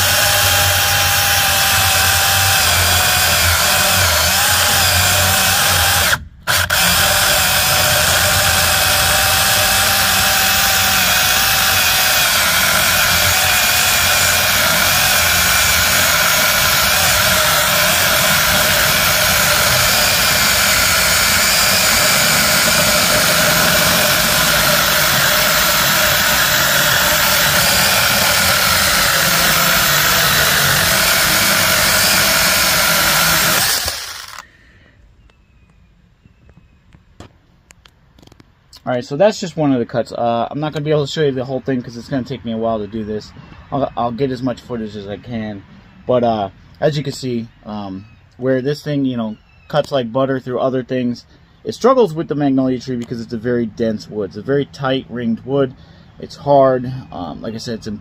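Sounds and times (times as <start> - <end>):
electric chainsaw cutting log: 0.0 - 34.5.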